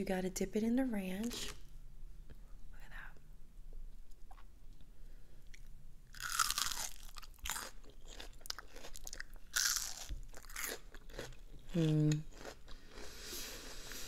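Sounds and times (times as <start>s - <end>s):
crunchy food chewing: 5.5s - 13.2s.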